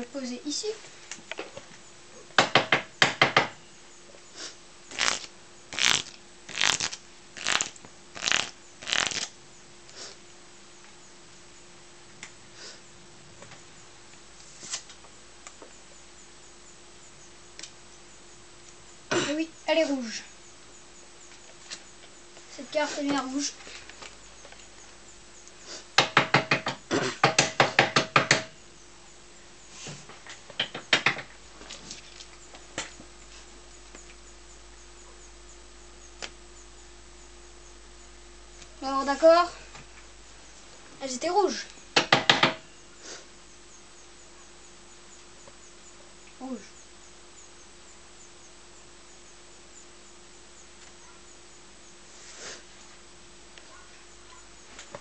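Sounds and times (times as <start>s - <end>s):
sharp knocks: 2.4s - 3.6s, 26.0s - 28.5s, 30.6s - 31.3s, 42.0s - 42.6s
playing cards shuffling: 4.9s - 9.3s.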